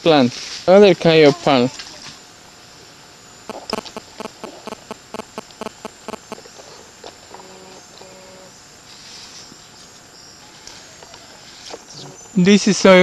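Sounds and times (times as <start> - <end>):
insects shrilling: 0.5 - 13.0
short pitched calls: 3.4 - 9.5
rapid sharp clicks: 3.5 - 6.4.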